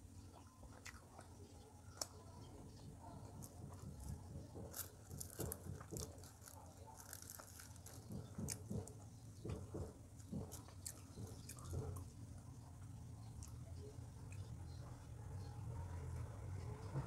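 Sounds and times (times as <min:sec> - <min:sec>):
person chewing pizza: 0:00.3 - 0:14.5
crust crunching: 0:03.4 - 0:12.0.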